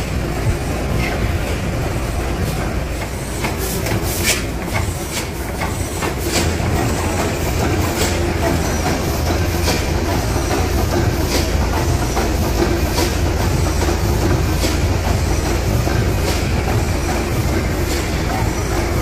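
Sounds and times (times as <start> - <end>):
gas engine low rumble: 4.6 - 19.0.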